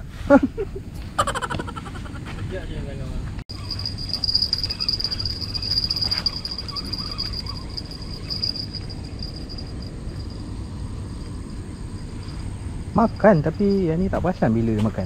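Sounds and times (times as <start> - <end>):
insects trilling: 3.5 - 15.0.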